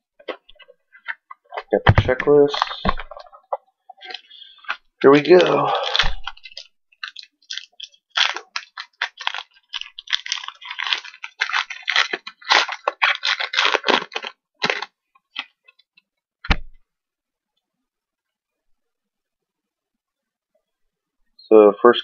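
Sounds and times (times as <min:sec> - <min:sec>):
foil wrapper crinkling: 0:02.4 - 0:15.8.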